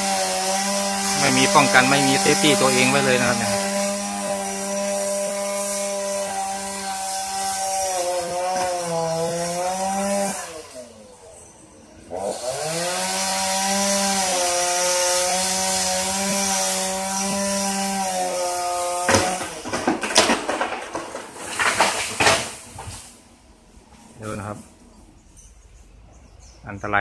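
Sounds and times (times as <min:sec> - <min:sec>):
chainsaw cutting: 0:00.0 - 0:23.1
sharp cracks: 0:19.0 - 0:23.3.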